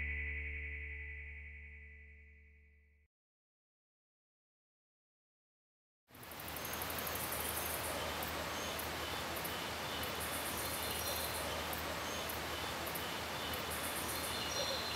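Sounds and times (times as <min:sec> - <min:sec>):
steady hiss: 0:06.1 - 0:14.9
insects chirping: 0:06.2 - 0:14.9
bird calls: 0:06.3 - 0:14.9.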